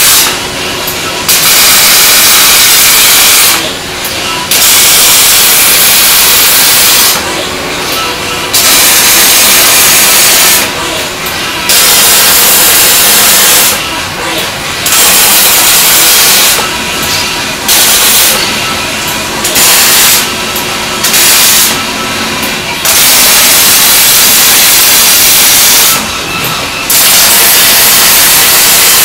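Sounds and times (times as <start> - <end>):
welding arc hissing: 0.0 - 0.4, 1.3 - 3.7, 4.5 - 7.2, 8.5 - 10.8, 11.6 - 13.8, 14.8 - 18.6, 19.4 - 20.4, 21.0 - 21.8, 22.8 - 26.1, 26.9 - 29.0.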